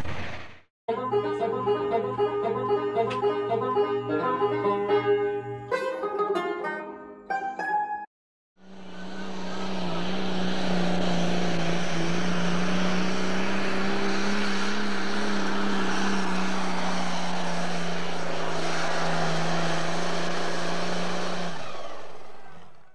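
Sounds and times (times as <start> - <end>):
tractor engine at full throttle: 8.6 - 22.9.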